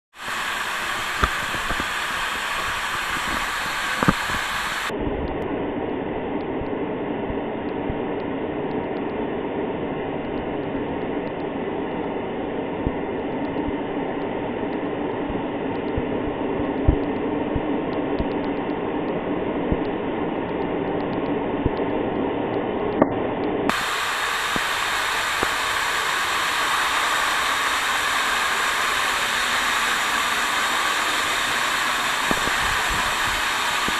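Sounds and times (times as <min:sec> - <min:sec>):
waterfall rushing: 0:00.1 - 0:04.9, 0:23.7 - 0:33.9.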